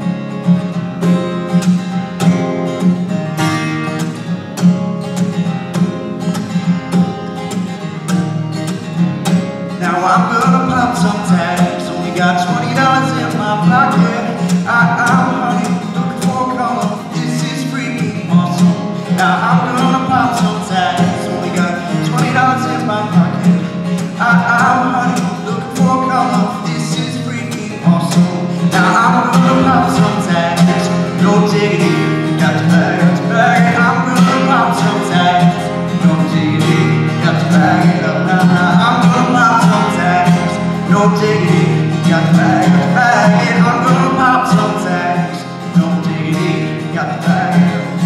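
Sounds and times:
acoustic guitar strumming: 0.0s - 48.0s
young man singing: 9.7s - 48.0s.

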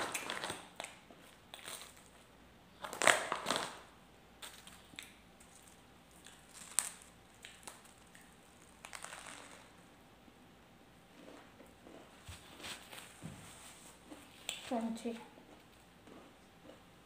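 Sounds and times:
person chewing bread: 4.4s - 9.8s, 11.1s - 13.1s, 15.4s - 17.0s.

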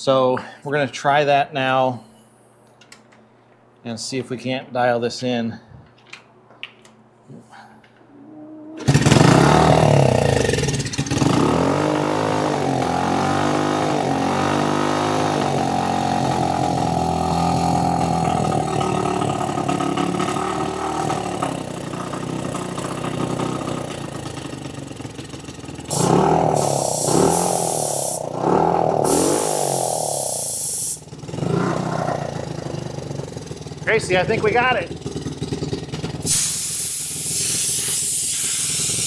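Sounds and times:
dirt bike engine idling: 15.4s - 37.7s.

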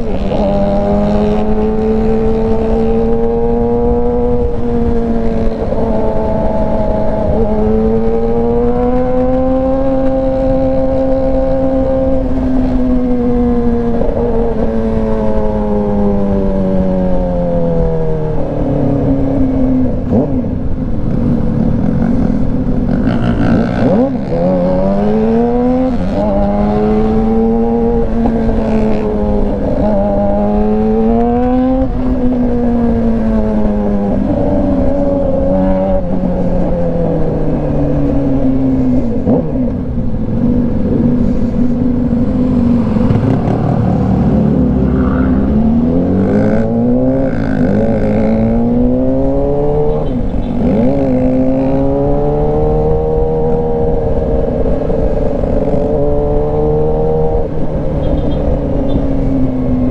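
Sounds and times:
motorcycle engine revving: 0.0s - 59.9s
wind rush: 0.0s - 59.9s.

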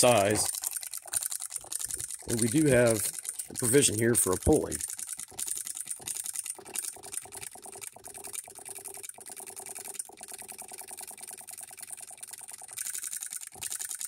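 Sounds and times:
steady hum: 0.0s - 0.7s, 1.6s - 5.0s
model engine clicking: 0.0s - 14.0s.

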